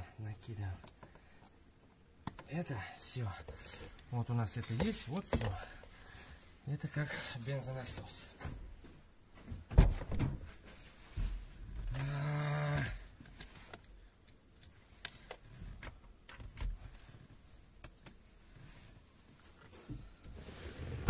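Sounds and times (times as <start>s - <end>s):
handling knocks and rustles: 3.4s - 6.0s, 7.8s - 11.9s.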